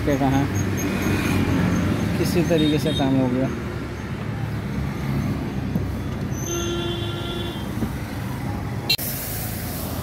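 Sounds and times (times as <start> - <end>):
street traffic rumble: 0.0 - 10.0
vehicle horn: 6.3 - 7.8
water jet hissing: 9.0 - 10.0.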